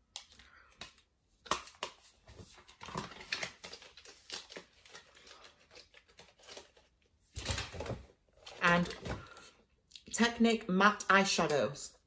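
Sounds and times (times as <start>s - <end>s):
packaging rustling and crinkling: 1.9s - 9.4s.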